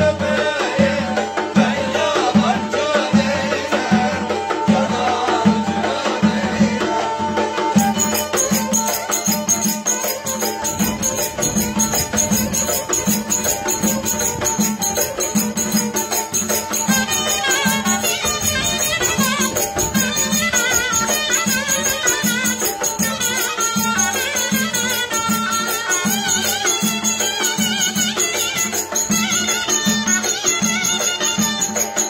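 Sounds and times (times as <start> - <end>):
bowed folk fiddle melody: 0.0 - 32.0.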